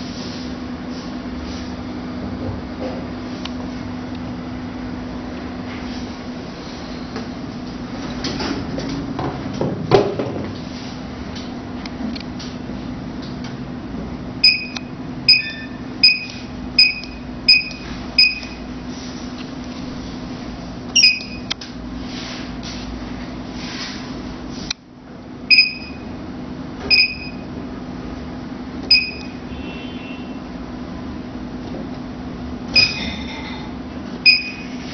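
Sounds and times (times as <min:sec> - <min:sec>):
steady low hum: 0:00.0 - 0:34.9
touchscreen key-press beeps: 0:14.4 - 0:18.6, 0:21.0 - 0:21.5, 0:25.5 - 0:26.0, 0:26.9 - 0:27.5, 0:28.9 - 0:29.4, 0:32.8 - 0:33.0, 0:34.2 - 0:34.6.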